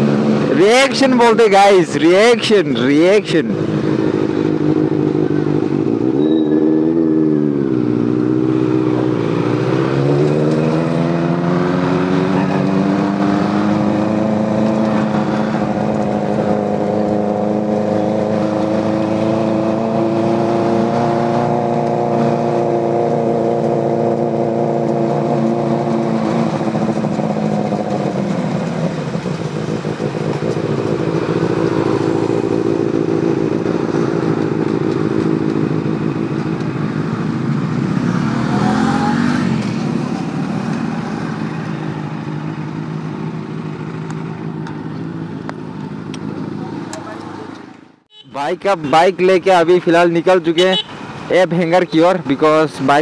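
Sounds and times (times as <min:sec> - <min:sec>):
motorcycle engines revving: 0:00.0 - 0:53.0.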